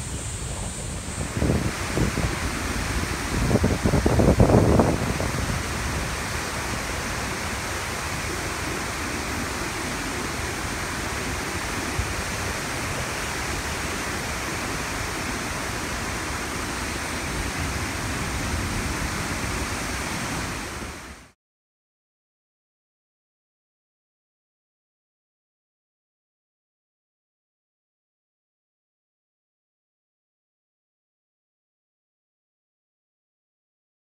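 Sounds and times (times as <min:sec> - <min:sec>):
wind buffeting microphone: 0:00.0 - 0:21.2
river rapids rushing: 0:00.0 - 0:21.4.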